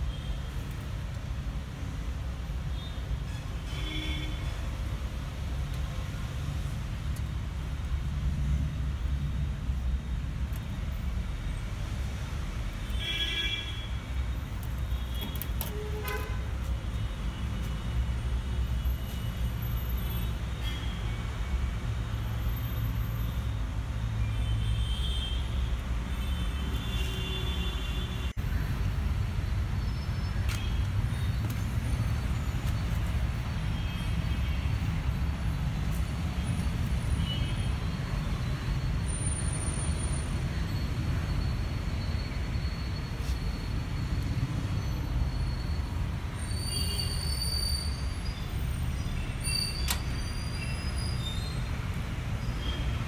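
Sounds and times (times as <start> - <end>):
road traffic rumbling: 0.0 - 53.0.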